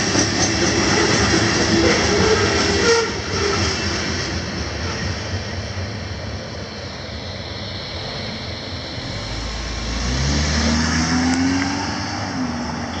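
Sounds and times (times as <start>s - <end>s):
freight train passing: 0.0s - 13.0s
car engine accelerating: 9.0s - 13.0s.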